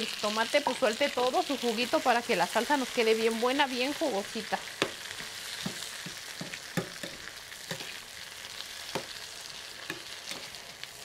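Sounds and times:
vegetables sizzling in oil: 0:00.0 - 0:11.0
spoon knocking against pan: 0:04.8 - 0:07.9, 0:08.9 - 0:09.2.

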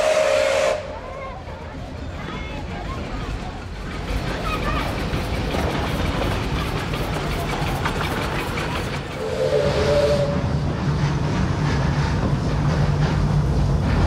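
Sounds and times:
hissing steam: 0:00.0 - 0:01.0, 0:03.7 - 0:14.0
steam train rumbling: 0:00.0 - 0:14.0.

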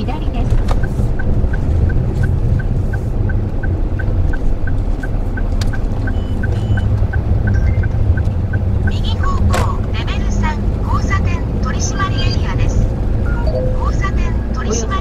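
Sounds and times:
engine and road rumble: 0:00.0 - 0:15.0
turn signal ticking: 0:00.0 - 0:15.0
short high beeps: 0:06.0 - 0:08.0, 0:13.3 - 0:15.0.

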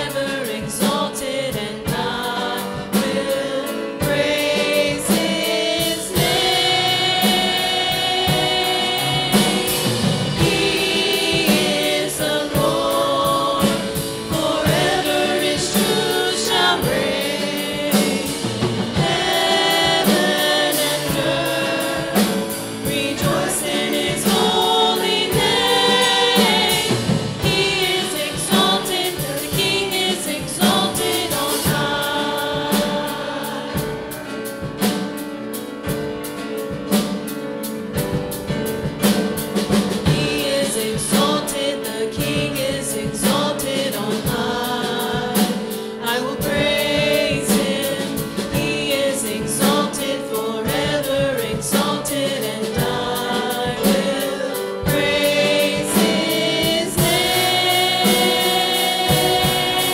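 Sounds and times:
accompaniment with steady beat: 0:00.0 - 0:59.9
choir singing worship song: 0:00.0 - 0:59.9
woman singing into microphone: 0:10.4 - 0:34.0, 0:40.1 - 0:59.9.

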